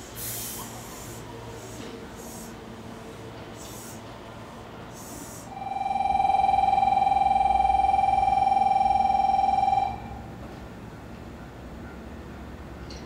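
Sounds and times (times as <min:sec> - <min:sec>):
electronic departure bell ringing: 0:05.5 - 0:10.3.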